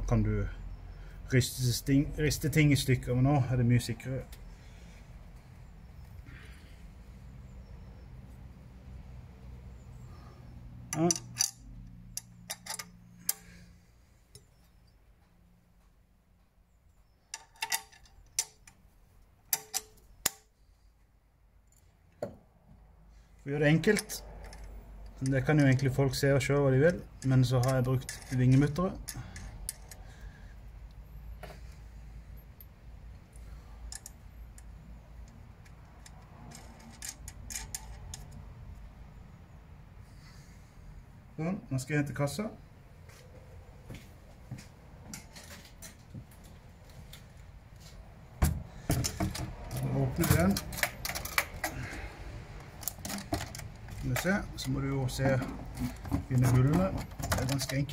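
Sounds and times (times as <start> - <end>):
metal tool clicks and clinks: 10.9 - 13.6, 17.3 - 18.8, 19.5 - 20.5, 23.8 - 25.9, 26.9 - 30.1, 33.8 - 38.4, 48.9 - 52.0, 52.6 - 54.8, 55.4 - 57.9.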